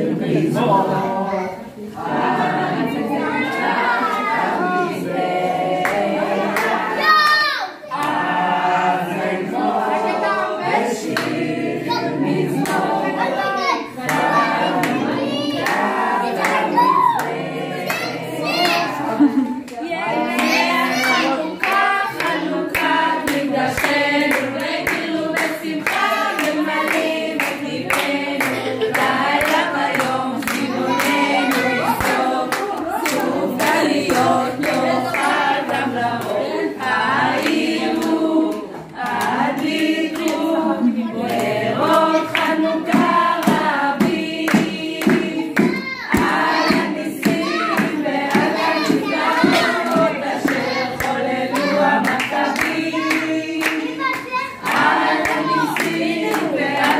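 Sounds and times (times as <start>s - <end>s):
group singing together: 0.0s - 56.9s
hand-clapping in time: 20.4s - 36.4s, 37.3s - 56.9s.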